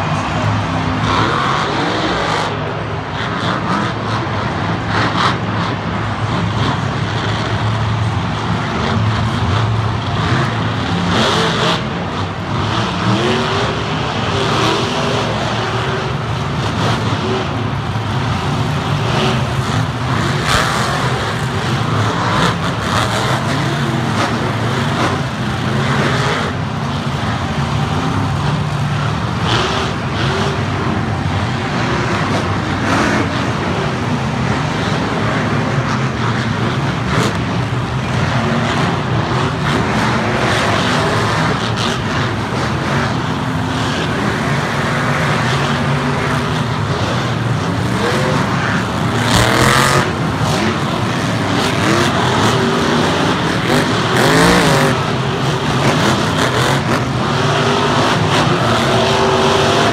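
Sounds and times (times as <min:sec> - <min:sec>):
truck engines revving: 0:00.0 - 0:59.9.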